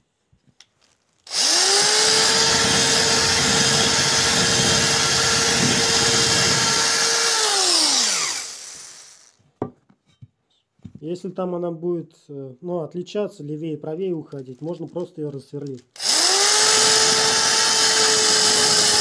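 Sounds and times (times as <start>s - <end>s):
electric drill running: 1.3s - 9.4s, 16.0s - 19.0s.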